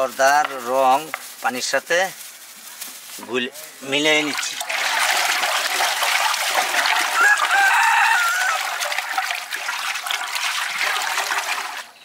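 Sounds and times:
water stirred in metal pot: 4.1 - 12.0
rooster crowing: 6.9 - 9.0.

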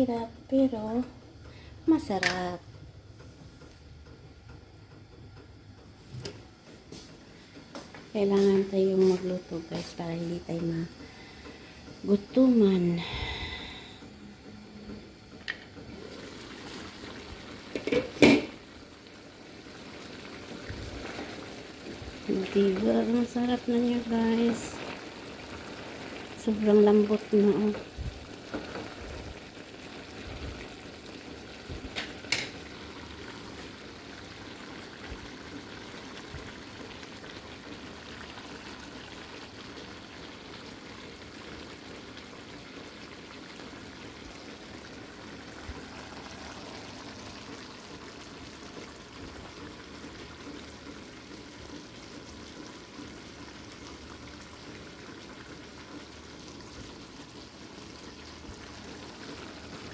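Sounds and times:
sauce bubbling in pot: 15.0 - 59.9.

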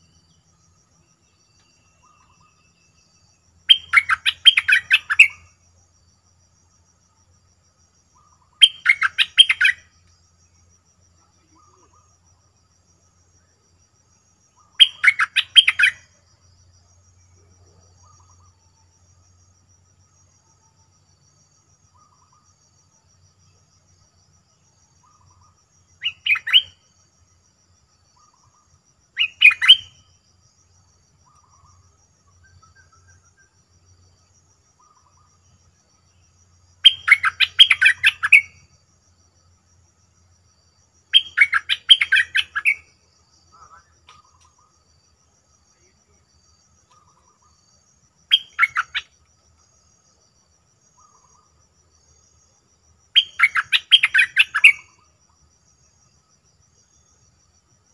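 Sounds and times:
faint low bird calls: 11.2 - 12.3, 43.5 - 44.8.

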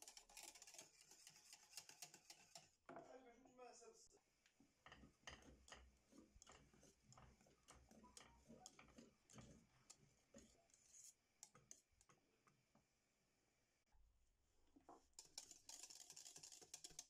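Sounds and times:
whisk ticking on saucepan: 0.0 - 2.7, 4.7 - 12.1, 15.2 - 17.0.

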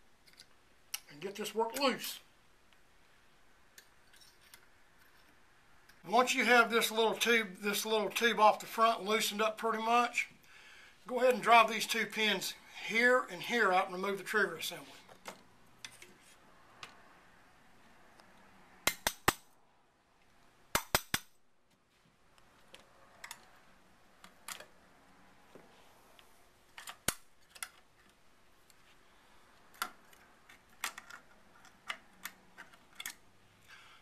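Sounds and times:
metal clicks of rifle parts: 29.7 - 33.2.

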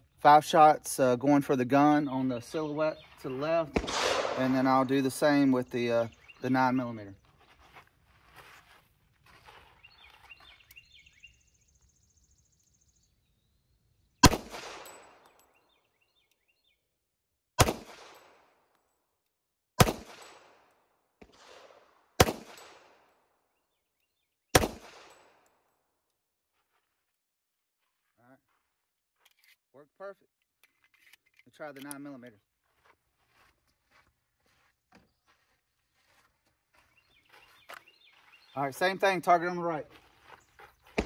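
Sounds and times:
pistol shots with echo: 3.6 - 4.9, 14.2 - 15.4, 17.6 - 18.6, 19.8 - 23.1, 24.5 - 25.4.

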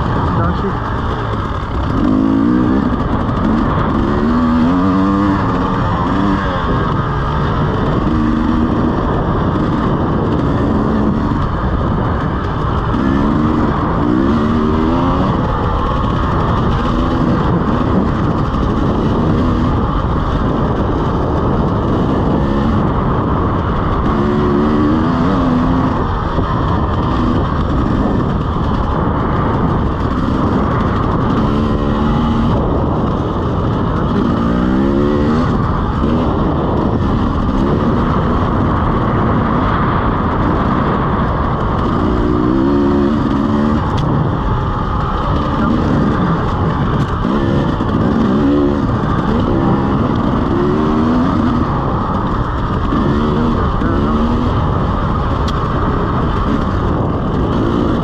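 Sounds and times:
dirt bike engine revving: 0.0 - 58.0
steady rushing noise: 0.0 - 58.0.

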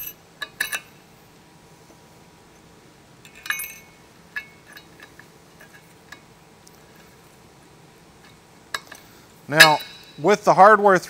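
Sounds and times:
steel bolts clinking on metal: 0.0 - 1.0, 3.2 - 7.2, 8.2 - 10.3.

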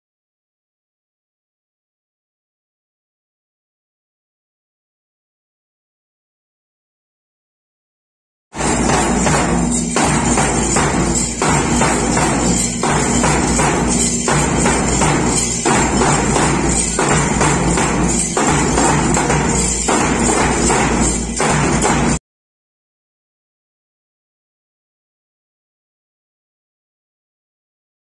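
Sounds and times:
bass drum: 8.6 - 22.2
drums beaten with sticks: 8.6 - 22.2
shaken maracas: 8.6 - 22.2.

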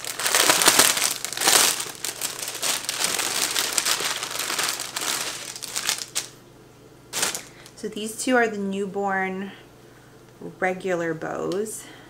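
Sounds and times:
plastic bag crinkling: 0.0 - 6.4, 7.1 - 7.7.

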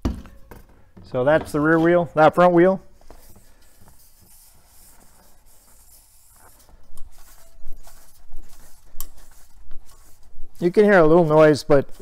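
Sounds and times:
hand rubbing on wheel rim: 3.0 - 12.0
scuffs on rubber mat: 3.0 - 12.0.

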